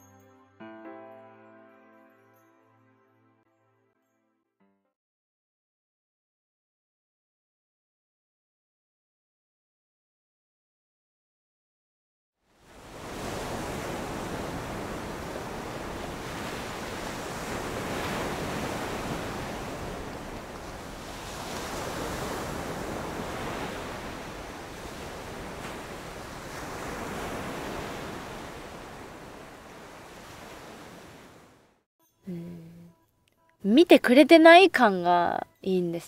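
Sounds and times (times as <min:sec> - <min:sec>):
surf breaking on beach: 0:12.6 - 0:31.6
wind rumbling on microphone: 0:12.7 - 0:31.6.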